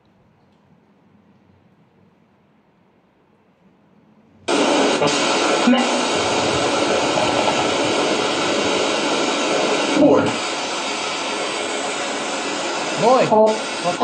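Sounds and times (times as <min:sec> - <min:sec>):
loud radio static: 0:04.5 - 0:14.0.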